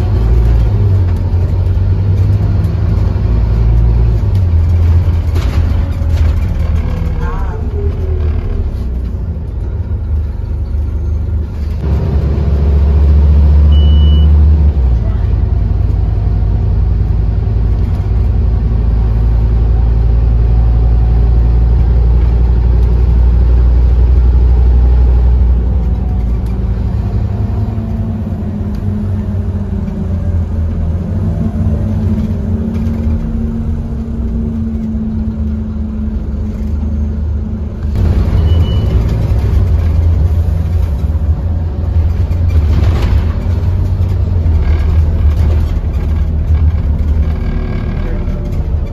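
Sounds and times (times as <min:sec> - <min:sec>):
bus diesel engine running: 0:00.0 - 0:48.9
short high beep: 0:13.7 - 0:14.4, 0:38.4 - 0:39.0.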